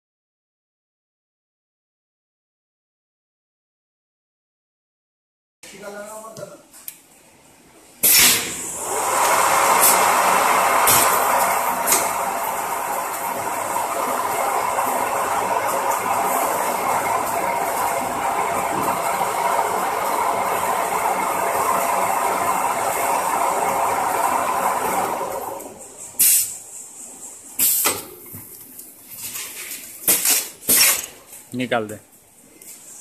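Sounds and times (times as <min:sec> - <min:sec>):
wrapping machine running: 0:08.3 - 0:26.4
compressed air hisses: 0:26.1 - 0:26.6.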